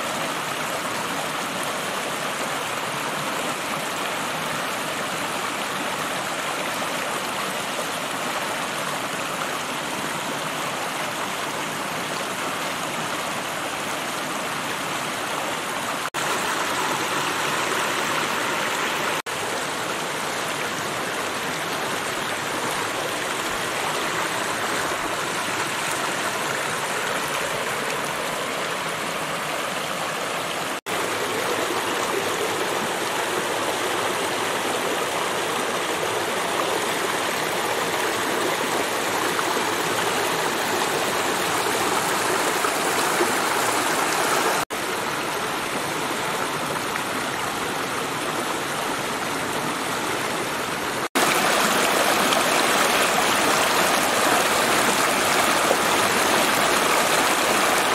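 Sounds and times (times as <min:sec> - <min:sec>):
stream flowing over stones: 0:00.0 - 0:57.9.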